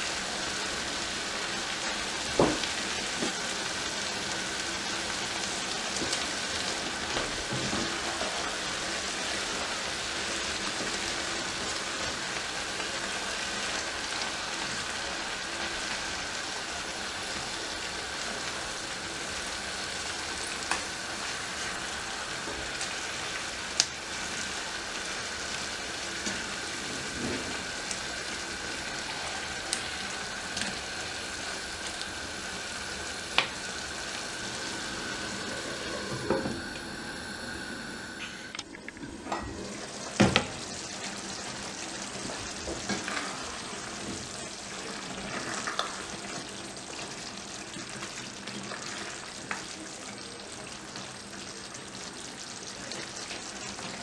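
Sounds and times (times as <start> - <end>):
food sizzling in a frying pan: 0.0 - 54.0
sauce simmering: 0.0 - 54.0
spatula stirring food: 40.5 - 47.2.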